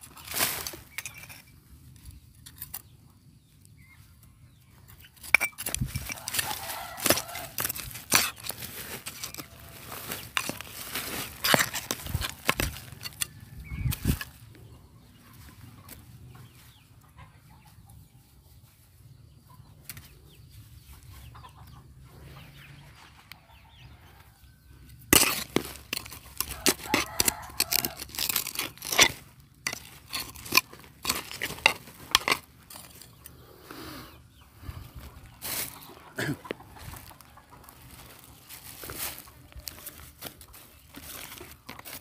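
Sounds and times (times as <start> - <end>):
digging tool chopping into soil: 5.3 - 9.5, 10.2 - 13.2, 25.1 - 32.5.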